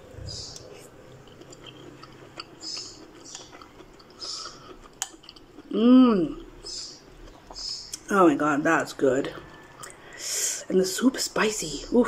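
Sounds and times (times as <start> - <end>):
person chewing noodles: 0.3 - 8.1, 9.4 - 10.2.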